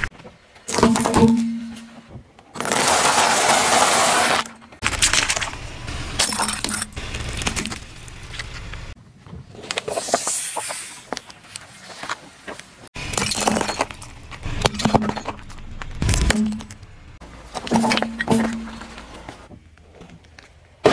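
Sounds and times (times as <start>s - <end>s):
ceramic shattering: 6.2s - 7.8s, 13.0s - 16.8s
pieces clinking on road: 13.0s - 16.9s.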